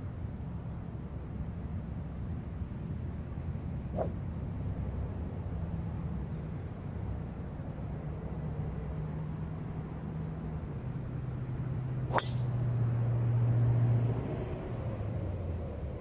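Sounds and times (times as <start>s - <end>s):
steady low hum: 0.0s - 7.8s
golf club striking ball: 4.0s - 4.2s, 12.1s - 12.6s.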